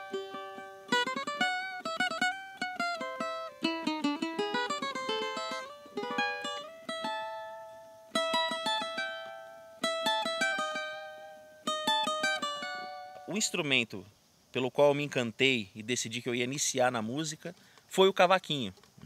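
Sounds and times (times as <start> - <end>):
cavaquinho playing: 0.0 - 13.9.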